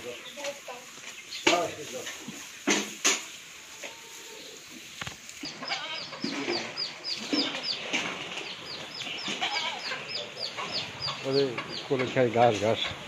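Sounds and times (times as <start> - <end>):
small bird peeping: 0.1 - 1.6, 4.4 - 12.1.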